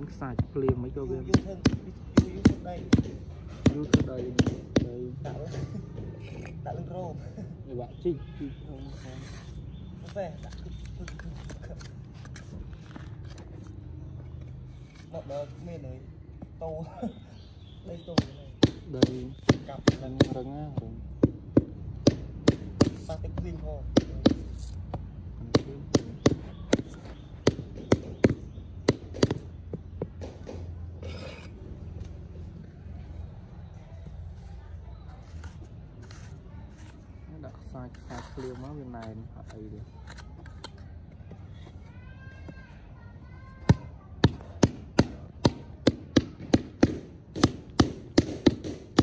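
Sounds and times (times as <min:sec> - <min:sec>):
rubber mallet knocking paving blocks: 0:00.3 - 0:05.1, 0:18.0 - 0:30.7, 0:43.7 - 0:49.0.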